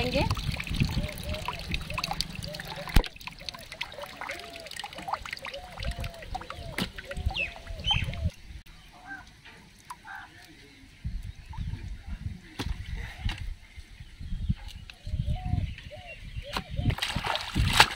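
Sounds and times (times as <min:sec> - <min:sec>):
water splashing and sloshing: 0:00.0 - 0:08.6, 0:16.6 - 0:17.9.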